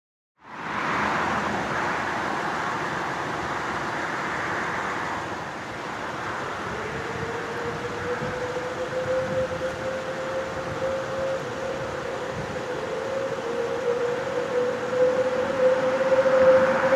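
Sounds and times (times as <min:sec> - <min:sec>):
steady rushing noise: 0:00.4 - 0:16.9
faint rising siren tone: 0:05.8 - 0:16.9.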